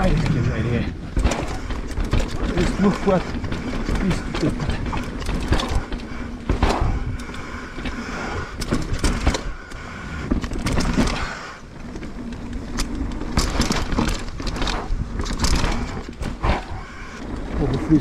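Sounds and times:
bike clattering and knocking: 0.0 - 18.0
bike tyres rolling over roots: 0.0 - 18.0.

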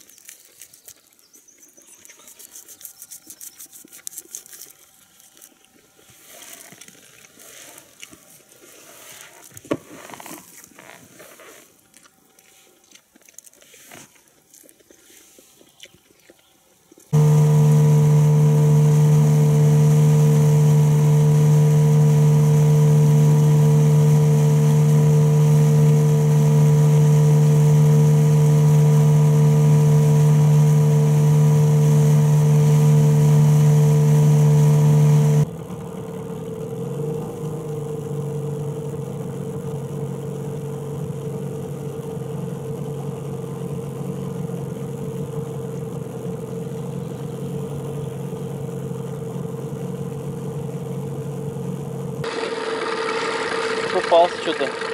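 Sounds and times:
faint rustles and clicks: 0.0 - 17.1
outboard motor running: 17.1 - 54.9.

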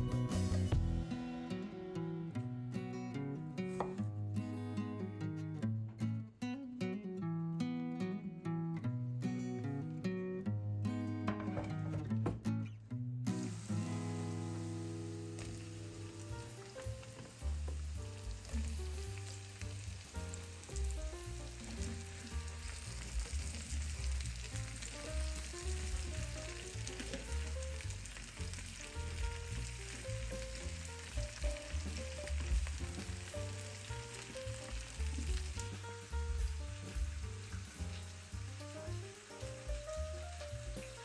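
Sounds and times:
soft background music: 0.0 - 6.4, 13.2 - 41.0
vegetables sizzling in frying pan: 13.3 - 41.0
wooden spatula turning food: 15.4 - 41.0.

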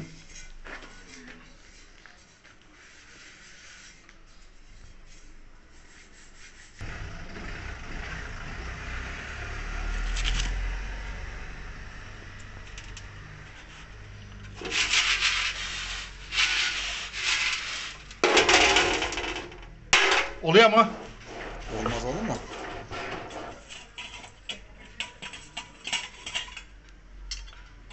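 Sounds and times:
loud rubbing strokes: 2.8 - 6.9, 14.6 - 18.1.

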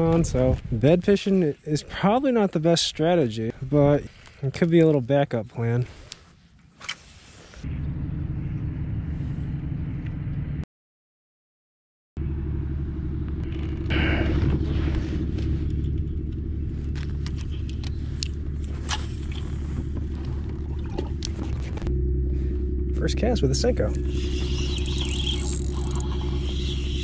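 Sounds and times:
steady low rumble: 0.0 - 4.6, 7.6 - 10.6, 12.2 - 27.0
fishing reel rustling and clicking: 24.0 - 27.0.

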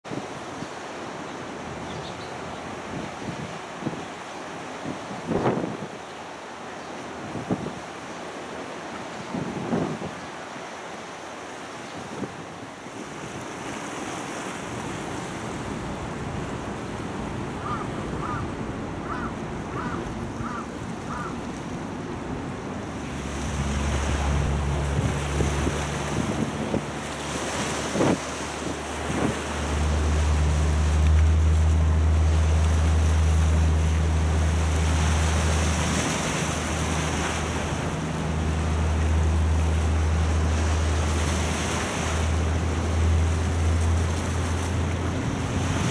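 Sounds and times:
wind and water noise: 0.0 - 45.9
wind buffeting the microphone: 27.6 - 29.5.

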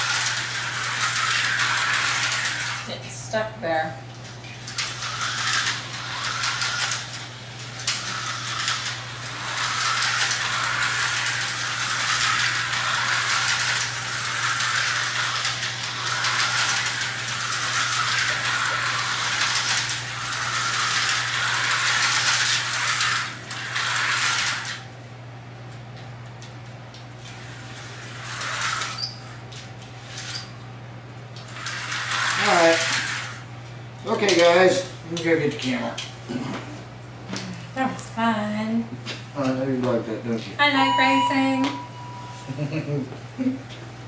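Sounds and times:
toy car rattling in track: 0.0 - 2.9, 4.6 - 24.8, 27.2 - 29.2, 30.0 - 30.5, 31.4 - 33.4
slot car motor whirring: 0.0 - 3.0, 4.4 - 24.8, 27.2 - 30.6, 31.4 - 33.5.

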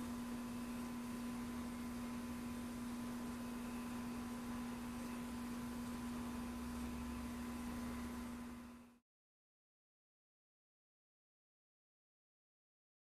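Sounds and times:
electronic hum: 0.0 - 9.0.

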